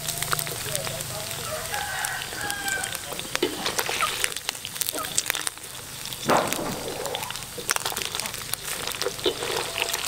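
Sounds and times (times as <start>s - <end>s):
hot oil crackling and spattering: 0.0s - 10.0s.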